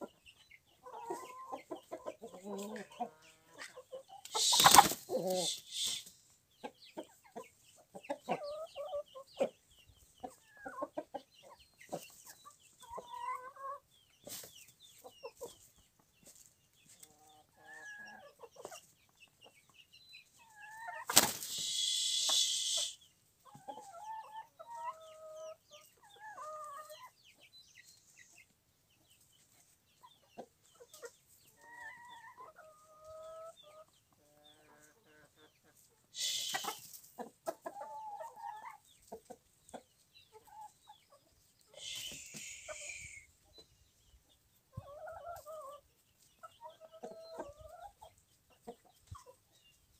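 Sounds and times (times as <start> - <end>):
chickens clucking: 0.0 - 49.9
loud harsh chicken burst: 4.3 - 6.1, 21.1 - 23.0, 41.8 - 43.2.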